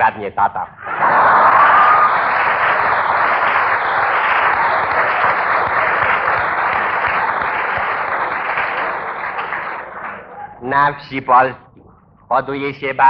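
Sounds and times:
audience applauding: 0:00.9 - 0:10.4.

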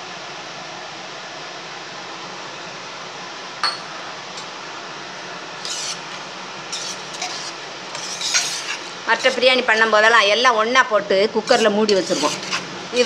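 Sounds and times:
oil frying hiss: 0:04.4 - 0:13.0
ladle scraping through rice: 0:05.6 - 0:09.7, 0:11.5 - 0:13.0.

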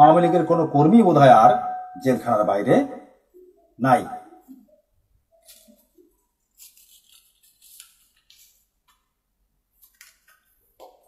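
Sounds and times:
faint rustling scratches: 0:05.4 - 0:09.1.

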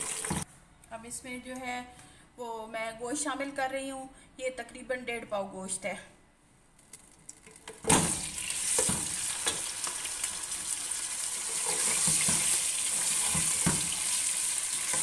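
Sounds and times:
meat sizzling in hot oil: 0:00.0 - 0:00.4, 0:07.9 - 0:15.0.

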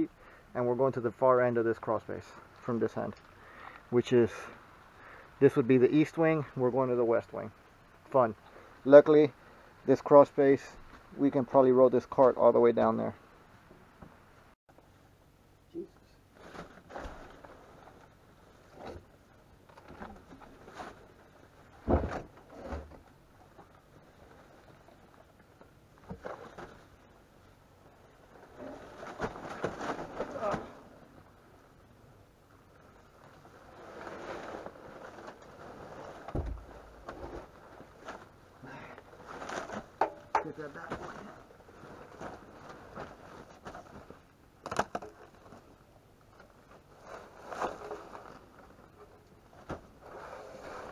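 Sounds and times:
heavy thump: 0:21.8 - 0:22.3, 0:36.3 - 0:37.2.

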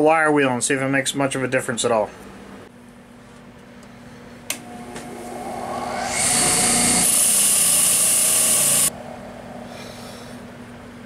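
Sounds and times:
bench grinder motor running: 0:04.6 - 0:08.9.

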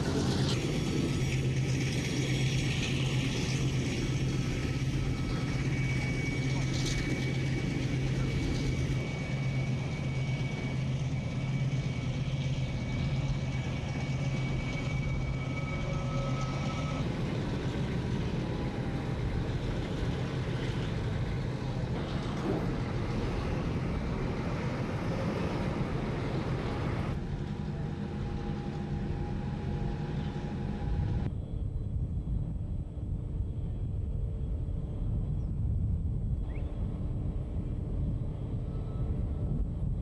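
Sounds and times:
low engine hum: 0:00.0 - 0:40.0
noisy rumble: 0:00.0 - 0:40.0.

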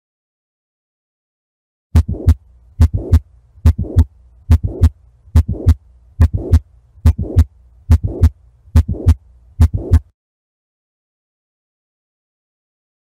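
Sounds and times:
faint low hum: 0:02.0 - 0:10.1
heart murmur: 0:02.0 - 0:10.1
heartbeat through stethoscope: 0:02.0 - 0:10.1.

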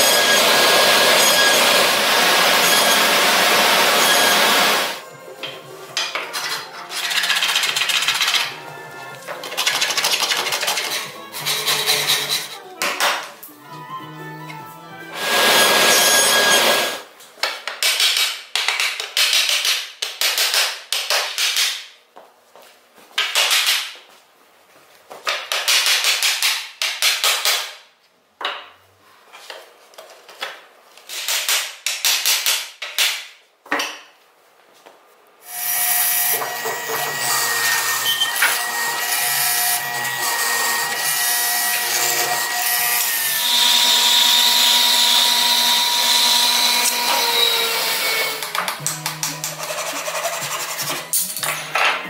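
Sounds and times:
bandsaw cutting a board: 0:00.0 - 0:05.0, 0:06.3 - 0:12.7, 0:15.1 - 0:17.1, 0:35.5 - 0:51.2
mortiser boring wood: 0:00.0 - 0:05.0, 0:15.2 - 0:17.0, 0:35.5 - 0:48.8
hand tools knocking on wood: 0:48.4 - 0:51.0.

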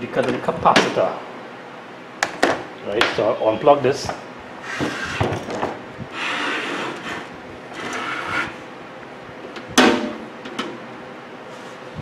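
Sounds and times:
metal cabinet scraping on wood: 0:04.6 - 0:08.7.

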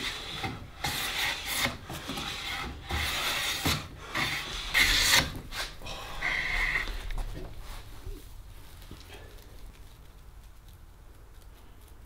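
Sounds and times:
plane rasping along wooden board: 0:00.0 - 0:07.0.

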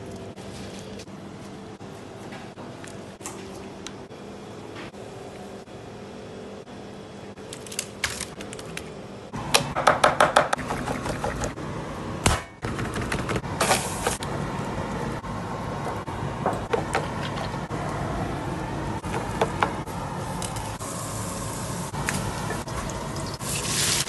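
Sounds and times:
hot oil crackling and sizzling: 0:20.8 - 0:24.0.

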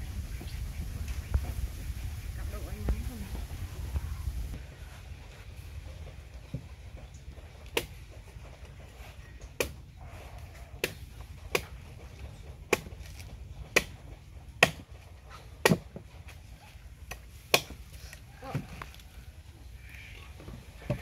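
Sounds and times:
cleaver chopping coconut husk: 0:07.6 - 0:08.0, 0:09.6 - 0:09.8, 0:10.7 - 0:16.3, 0:17.0 - 0:19.0.

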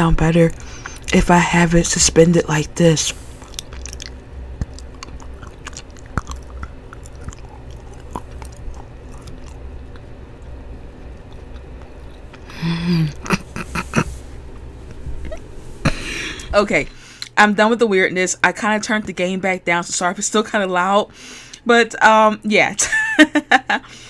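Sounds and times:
microphone hum: 0:03.1 - 0:17.0
chewing and crunching: 0:03.2 - 0:12.5
wet mouth clicks: 0:03.4 - 0:10.1.

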